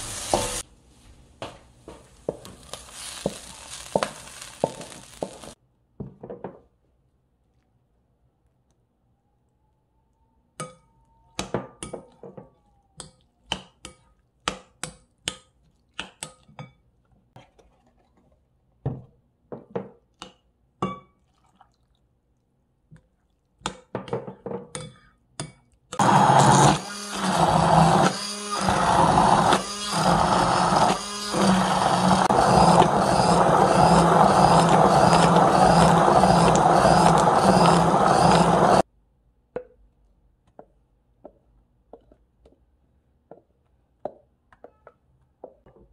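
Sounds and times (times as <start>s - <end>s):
immersion blender running: 26.0s - 38.8s.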